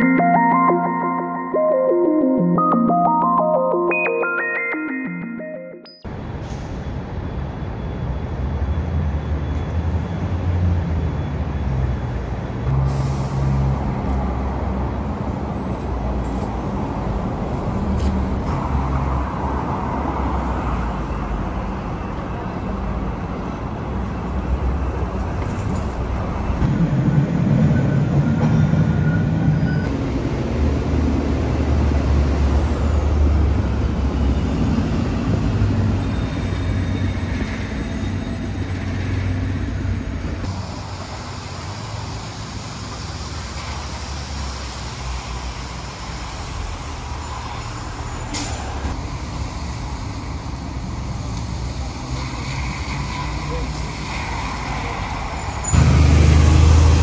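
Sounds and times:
buses and truck passing: 0.0 - 57.0
air brakes hissing: 6.3 - 7.1, 12.8 - 13.7, 48.0 - 49.0.

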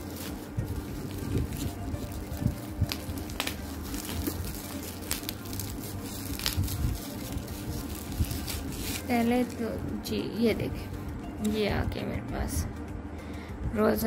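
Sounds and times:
bubble wrap crackling: 0.0 - 12.0.

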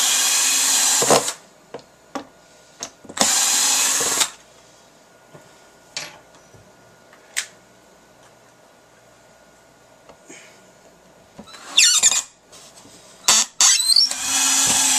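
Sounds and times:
power drill driving screw into wood: 0.0 - 1.4, 3.2 - 4.4, 13.3 - 14.9.

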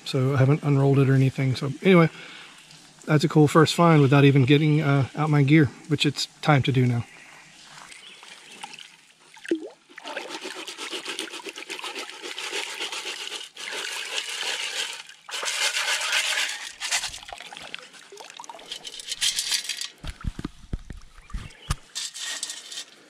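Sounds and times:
water sloshing: 7.8 - 22.2
sand washing through metal scoop: 10.0 - 17.6, 18.6 - 20.0, 21.9 - 23.0.

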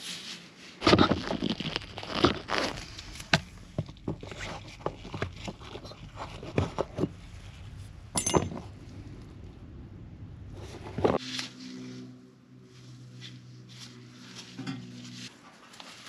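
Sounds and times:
handling clicks taps and rustles: 2.2 - 7.2.

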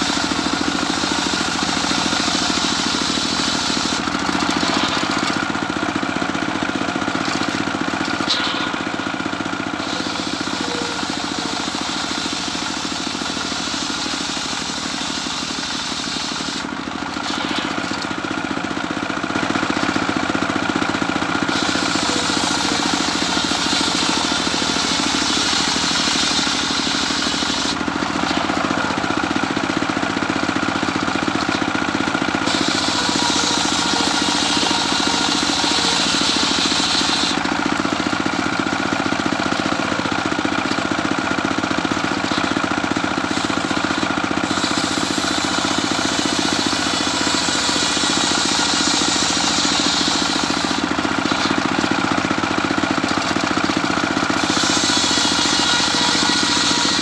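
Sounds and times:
saw blade cutting hiss: 0.0 - 5.4, 9.7 - 18.0, 21.4 - 29.5, 32.2 - 38.0, 43.2 - 51.6, 54.3 - 57.0
sawmill engine running: 0.0 - 57.0.

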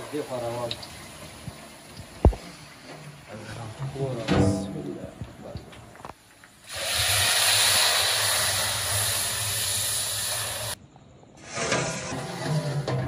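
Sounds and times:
broth pouring into a pot: 6.5 - 10.8.

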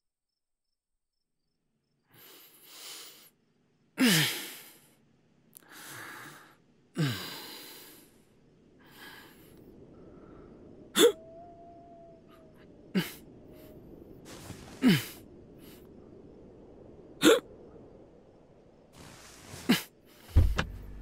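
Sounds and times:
man breathing in heavily: 2.1 - 3.4, 5.6 - 10.7
man sighing: 14.7 - 15.8.

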